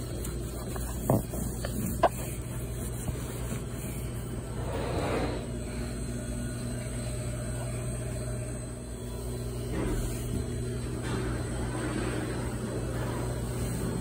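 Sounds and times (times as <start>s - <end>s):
rubbing or handling noise: 0.0s - 5.5s
low machine hum: 0.0s - 14.0s.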